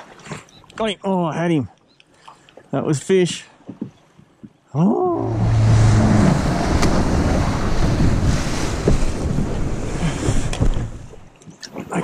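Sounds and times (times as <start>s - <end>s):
water against boat hull: 3.6s - 12.0s
wind rushing on microphone: 5.1s - 11.2s.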